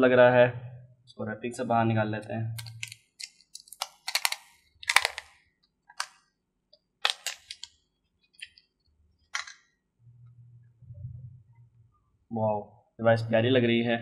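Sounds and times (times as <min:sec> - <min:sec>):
plastic wrapping crinkling: 0:02.6 - 0:06.1, 0:07.0 - 0:08.7.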